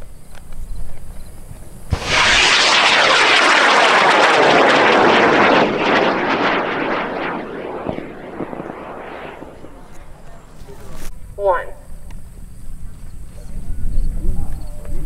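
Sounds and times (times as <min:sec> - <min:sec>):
rocket motor exhaust roar: 0:01.9 - 0:10.3.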